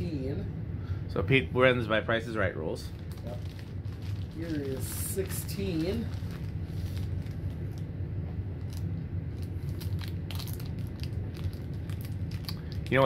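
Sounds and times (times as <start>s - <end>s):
ceiling fan motor humming: 0.0s - 13.0s
snack food crunching: 8.6s - 13.0s.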